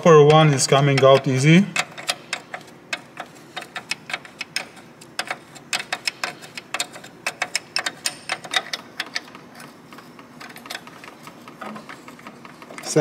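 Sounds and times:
ratchet wrench clicking: 0.9 - 9.4.

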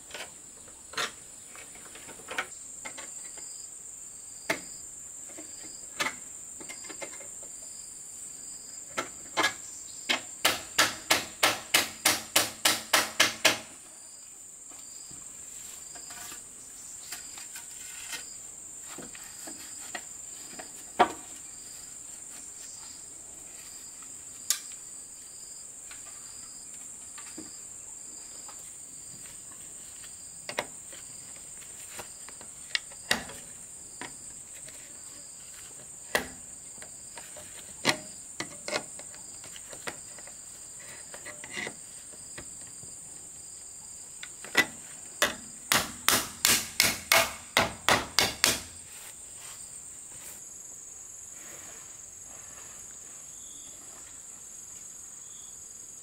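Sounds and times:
insects chirring: 0.0 - 56.0
tools knocking bamboo pole: 9.0 - 13.7, 44.4 - 48.7.

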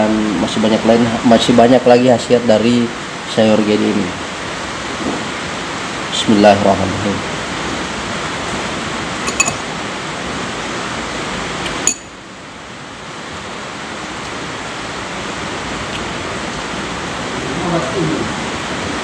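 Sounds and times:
steady hiss: 0.0 - 19.0
metal spoon clinking on glass bowl: 9.3 - 9.6, 11.9 - 12.1.

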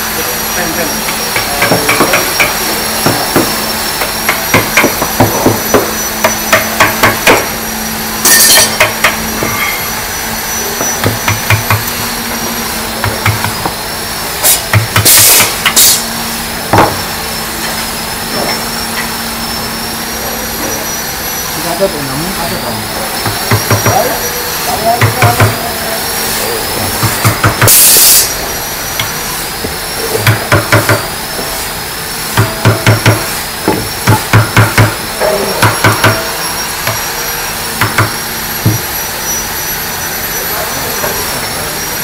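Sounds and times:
loud hiss bursts: 0.0 - 18.2, 23.1 - 42.0
machine hum with high whine: 0.0 - 42.0
hammer knocking on wood: 1.1 - 7.5, 8.6 - 9.6, 10.8 - 11.9, 13.0 - 13.8, 16.7 - 17.0, 23.2 - 24.1, 25.0 - 25.6, 26.8 - 27.8, 29.0 - 31.5, 32.4 - 37.1, 37.8 - 39.0.

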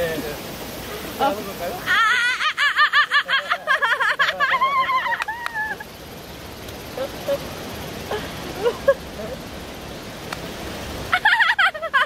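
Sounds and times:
stream water running: 0.0 - 12.0
burst of laughter: 1.9 - 5.8, 11.1 - 12.0.

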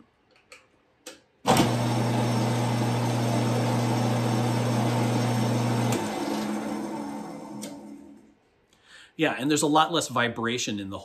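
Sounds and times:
drill press motor hum: 1.5 - 8.3.

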